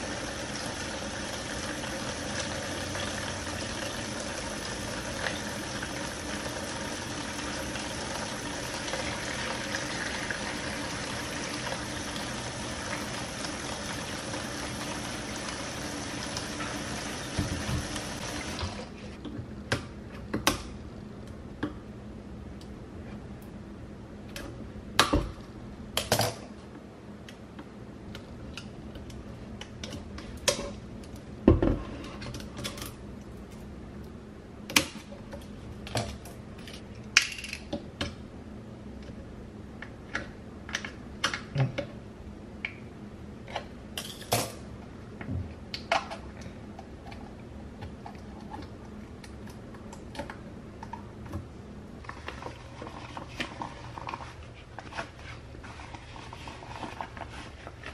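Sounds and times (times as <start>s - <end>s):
rubber gloves rustling: 52.5s - 57.9s.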